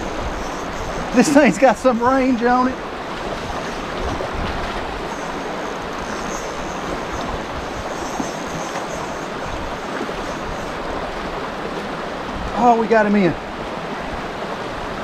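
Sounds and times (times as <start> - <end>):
river running over rocks: 0.0 - 15.0.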